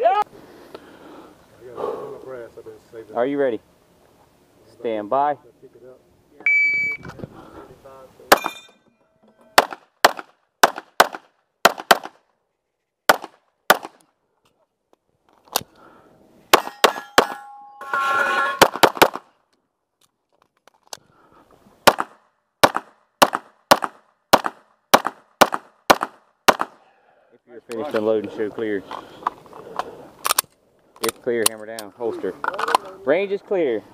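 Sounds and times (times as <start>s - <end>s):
pistol shots: 9.6s - 12.2s, 13.1s - 14.0s, 16.5s - 17.4s, 21.8s - 26.8s
ringing noise: 16.6s - 18.7s.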